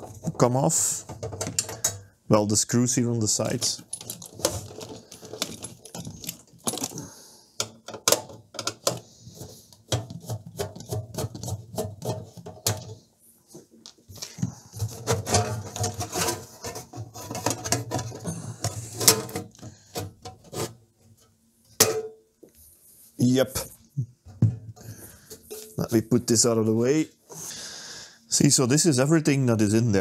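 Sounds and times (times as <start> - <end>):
metallic clicks and rattles: 1.1 - 2.1, 3.6 - 7.0.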